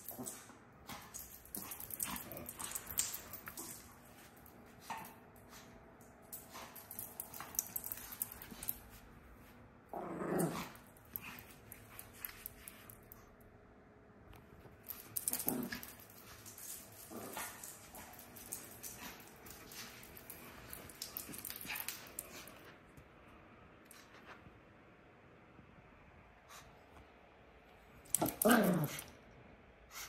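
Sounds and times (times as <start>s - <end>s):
dog growling: 9.9s - 11.4s, 15.2s - 16.0s, 17.0s - 18.3s, 28.2s - 29.1s.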